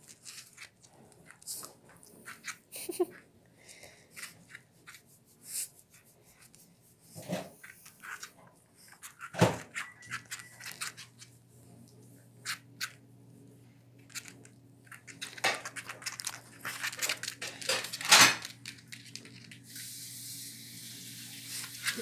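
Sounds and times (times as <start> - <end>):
faint low hum: 0.0 - 22.0.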